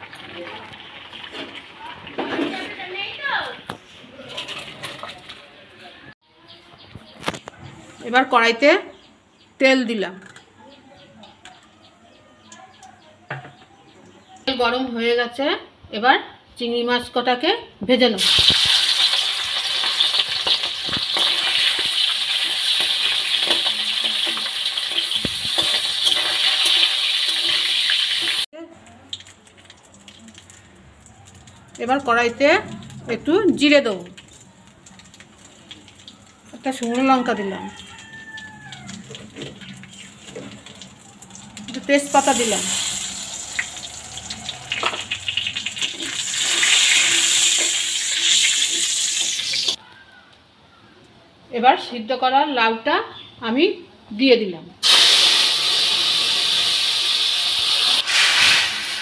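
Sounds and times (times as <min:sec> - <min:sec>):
prawns sizzling in hot oil: 0:00.0 - 0:03.4, 0:18.2 - 0:49.8, 0:54.8 - 0:59.0
metal spatula stirring: 0:19.0 - 0:28.4.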